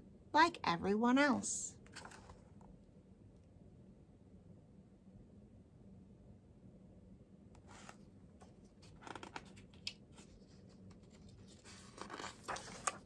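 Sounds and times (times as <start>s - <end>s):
paper pages rustling: 1.9s - 2.5s, 7.7s - 13.0s
light clicks of paper: 8.8s - 13.0s.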